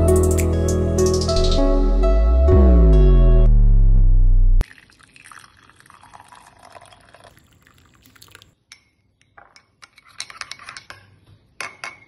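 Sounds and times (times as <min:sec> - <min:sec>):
milk pouring into a mug: 0:04.6 - 0:08.6
spoon clinking in a mug: 0:08.7 - 0:12.0.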